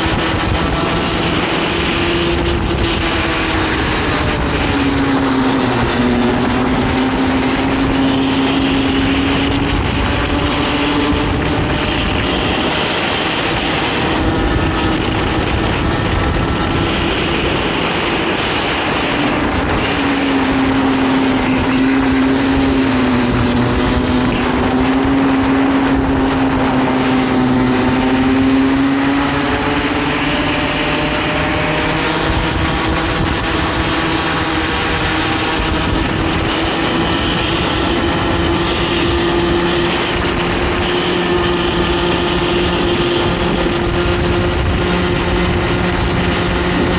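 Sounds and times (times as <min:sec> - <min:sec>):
kart engine at racing revs: 0:00.0 - 0:46.9
wind: 0:00.0 - 0:46.9.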